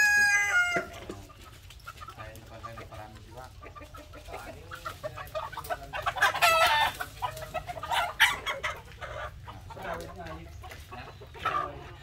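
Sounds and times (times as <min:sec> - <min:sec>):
chicken squawking: 0:00.0 - 0:01.0, 0:01.9 - 0:10.0
chickens clucking: 0:00.0 - 0:12.0.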